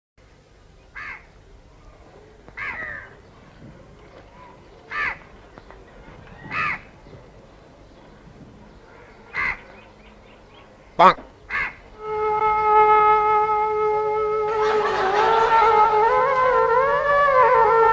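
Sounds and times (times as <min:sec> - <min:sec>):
crow cawing: 0:01.0 - 0:01.3, 0:02.6 - 0:03.2, 0:04.9 - 0:05.3, 0:06.4 - 0:06.9, 0:08.9 - 0:09.7, 0:11.0 - 0:11.9.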